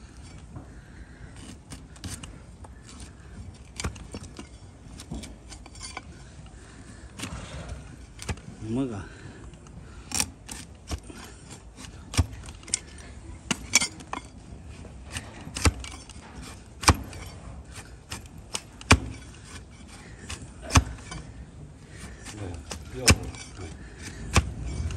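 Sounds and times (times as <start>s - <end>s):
hoof horn cracking: 15.0s - 24.9s.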